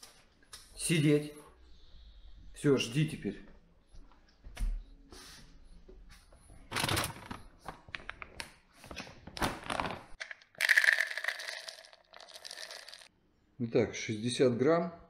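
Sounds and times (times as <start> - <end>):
kibble rattling into plastic cup: 10.6 - 13.1.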